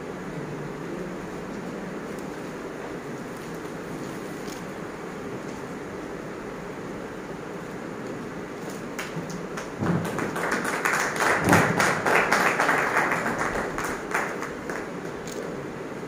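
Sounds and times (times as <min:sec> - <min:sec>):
small group clapping: 0:08.7 - 0:15.5.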